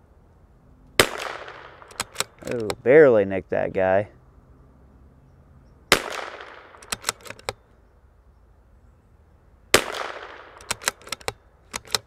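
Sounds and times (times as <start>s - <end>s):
rifle shots with echo: 1.0s - 2.5s, 5.9s - 7.3s, 9.7s - 11.2s
rifle bolt clicks: 1.2s - 2.8s, 6.3s - 7.6s, 9.9s - 12.0s.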